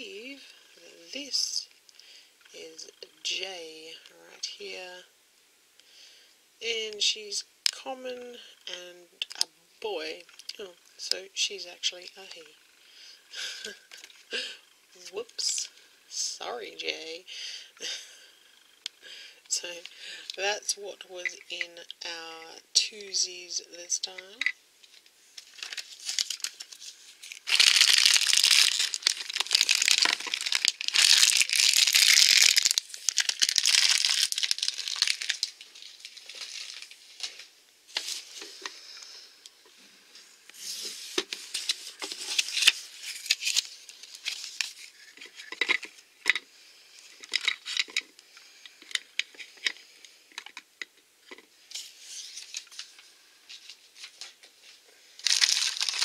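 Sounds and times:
packaging rustling and tearing: 25.4 - 38.4, 40.6 - 46.0, 55.2 - 56.0.

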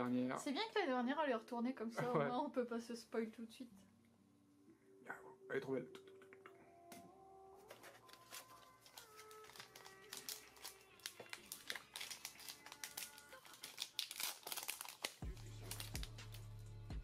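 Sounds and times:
soft background music: 0.0 - 17.0
foil wrapper crinkling: 7.7 - 16.6.

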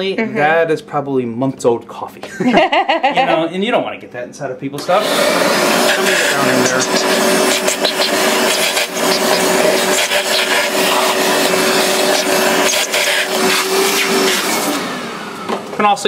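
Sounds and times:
shop vacuum running: 4.8 - 16.0.

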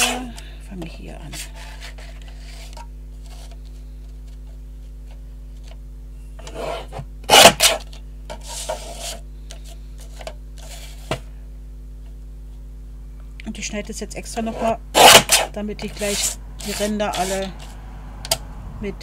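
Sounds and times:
scissors cutting paper: 6.5 - 9.2, 14.6 - 17.8.

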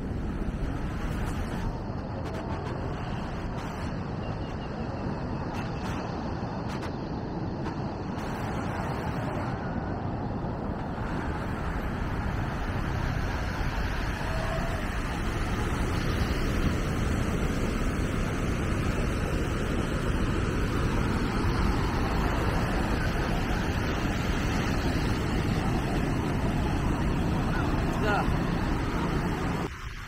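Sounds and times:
wind on microphone: 0.0 - 30.0
waves breaking on beach: 10.0 - 30.0.

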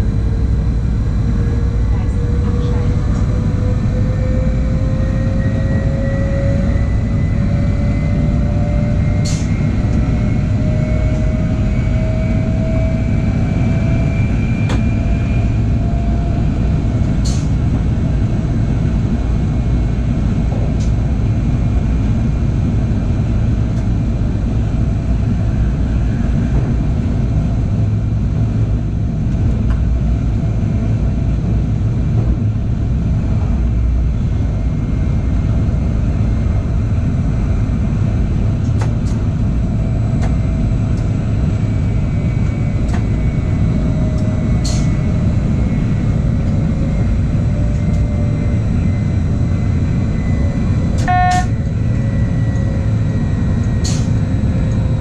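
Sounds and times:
train whine rising in pitch: 0.0 - 17.5, 39.4 - 55.0
train rumble: 0.0 - 55.0.

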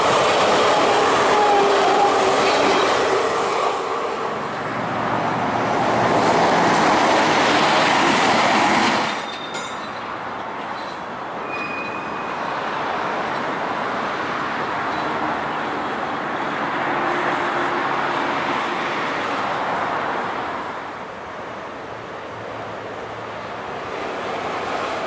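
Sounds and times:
rushing passing traffic: 0.0 - 25.0
high wheel squeal: 9.1 - 12.6.

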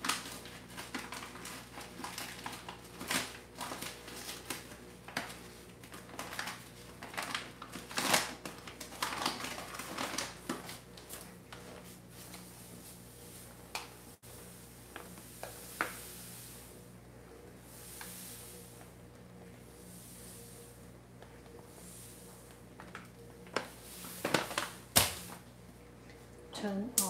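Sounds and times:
sugar bag rustling: 0.0 - 16.8, 21.6 - 25.5.

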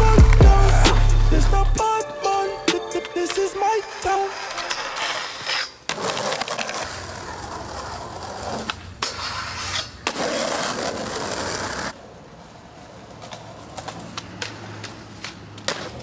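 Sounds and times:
skateboard wheels rolling on pavement: 0.0 - 16.0
skateboard grinding metal rail: 3.3 - 11.9
skateboard clacks: 13.1 - 16.0.

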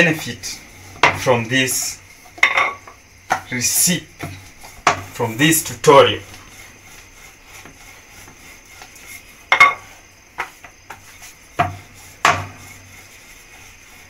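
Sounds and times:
rolling pin rolling dough: 0.0 - 14.0
wooden knocks: 1.0 - 1.3, 4.2 - 5.1, 11.6 - 12.6.

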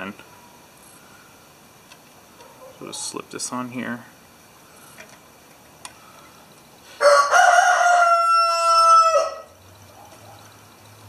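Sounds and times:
rooster crowing: 7.0 - 9.6.

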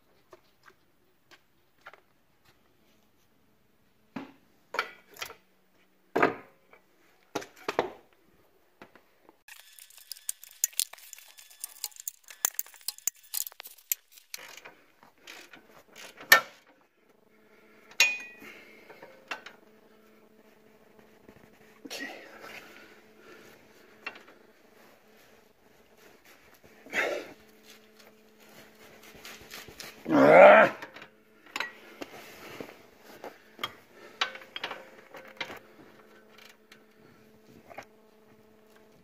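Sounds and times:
faint steady hum: 8.0 - 39.0
hand tools clinking on metal: 9.5 - 14.6, 18.0 - 18.5
ratchet wrench clicking: 9.5 - 14.6.

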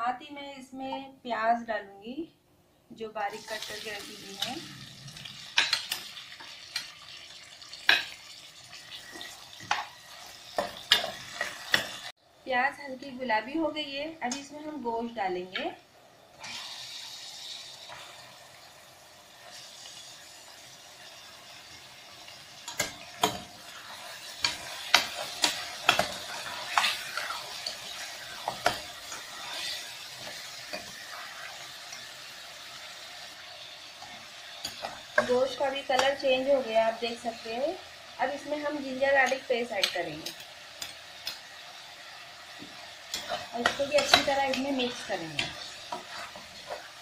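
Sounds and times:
onions sizzling in oil: 3.2 - 47.0
metal spoon scraping a pan: 8.9 - 12.1, 22.6 - 32.4, 34.0 - 36.7, 42.5 - 47.0.

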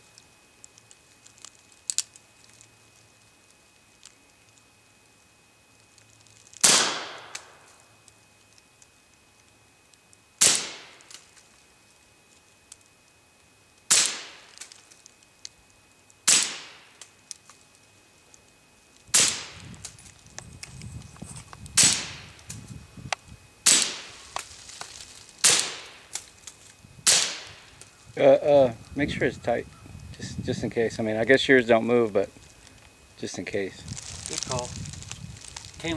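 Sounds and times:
suppressed pistol shots: 6.6 - 7.6.

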